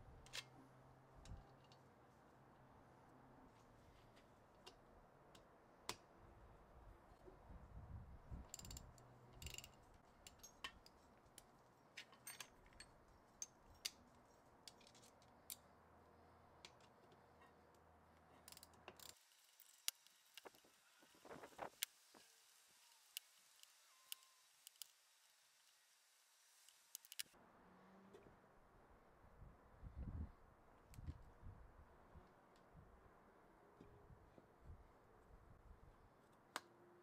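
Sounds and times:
socket ratchet clicking: 8.5s - 9.8s
small metal tools clinking: 12.0s - 13.8s.

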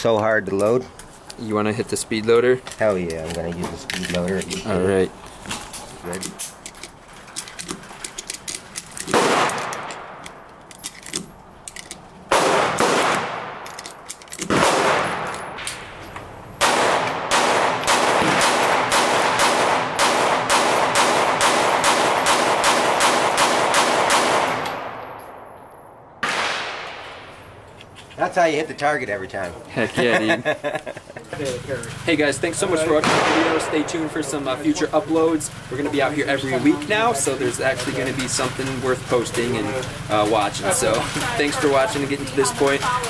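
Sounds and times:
clicks of rounds handled: 2.2s - 12.1s, 13.6s - 14.5s
pistol shots: 9.1s - 10.4s, 12.3s - 16.0s, 16.6s - 25.5s, 26.2s - 27.6s, 32.9s - 34.6s.

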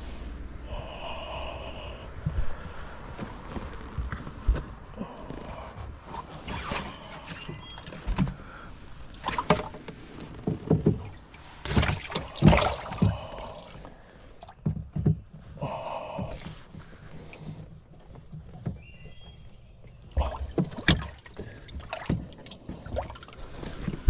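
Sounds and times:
water splashing in a tank: 6.1s - 17.6s, 20.0s - 24.0s
knocks: 14.6s - 15.4s.

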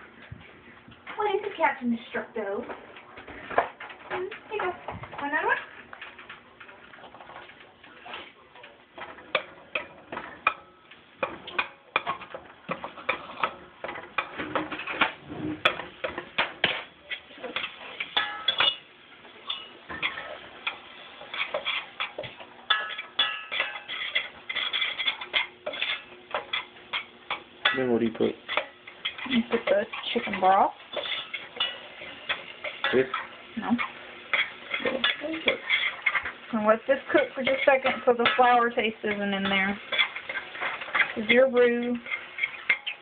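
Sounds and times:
metal spoon scraping a saucepan: 19.5s - 43.0s.

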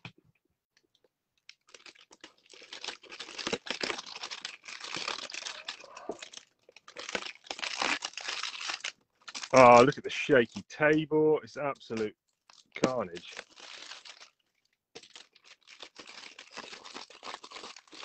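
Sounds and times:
cellophane crinkling: 0.9s - 18.0s
knife slitting shrink wrap: 1.7s - 9.9s, 12.8s - 14.3s, 15.0s - 18.0s.

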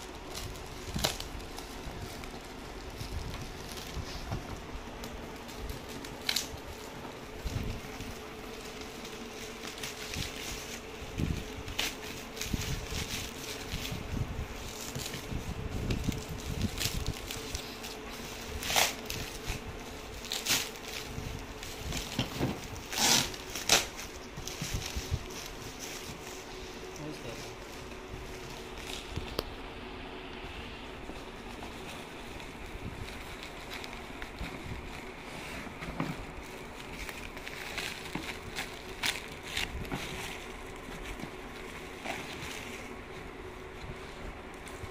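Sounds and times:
plastic wrap crinkling: 0.0s - 29.7s, 30.9s - 44.9s
faint steady hum: 0.0s - 44.9s
steady background hiss: 0.0s - 44.9s
cardboard box rustling: 31.0s - 44.9s.

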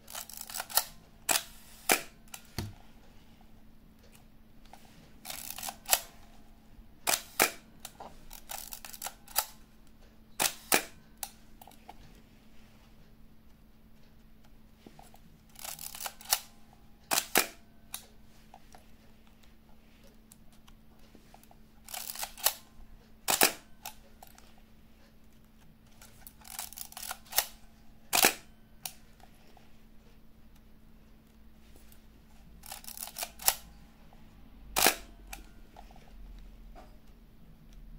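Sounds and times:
film advance lever rasping: 7.1s - 9.5s, 21.8s - 22.6s, 26.0s - 29.0s, 32.6s - 33.7s
camera shutter clack: 10.4s - 11.0s, 17.1s - 17.6s, 23.3s - 24.0s, 26.5s - 28.5s, 34.8s - 35.5s.

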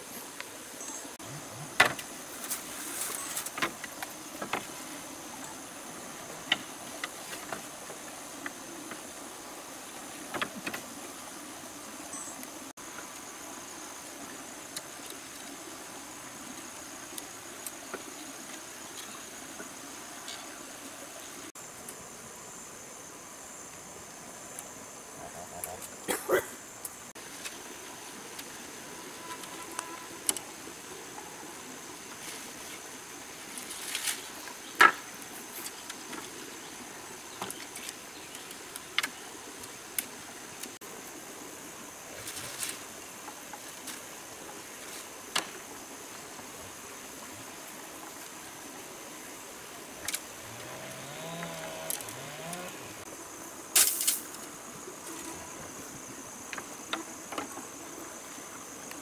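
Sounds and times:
high insect drone: 0.0s - 59.0s
bamboo poles knocking: 1.7s - 2.1s, 3.5s - 4.7s, 10.3s - 10.8s, 34.8s - 35.1s.

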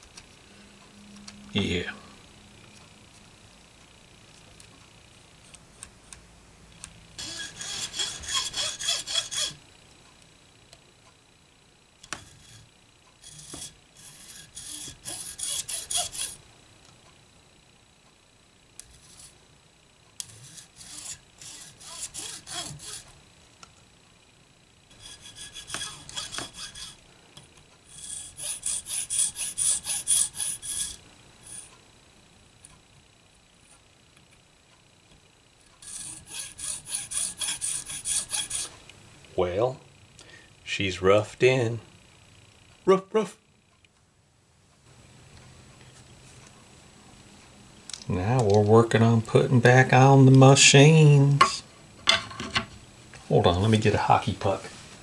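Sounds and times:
hand saw rasping strokes: 7.2s - 9.6s, 13.2s - 16.4s, 20.2s - 23.1s, 24.9s - 27.0s, 27.9s - 31.7s, 35.8s - 38.7s.

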